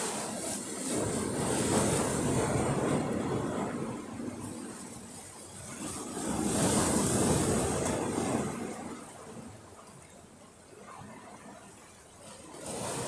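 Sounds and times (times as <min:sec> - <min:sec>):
wind on microphone: 0:00.0 - 0:09.6
rough sea surging: 0:00.0 - 0:13.0.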